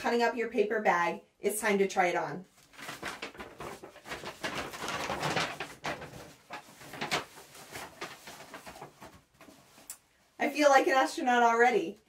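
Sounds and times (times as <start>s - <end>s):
paper bag crinkling and rustling: 2.6s - 9.9s.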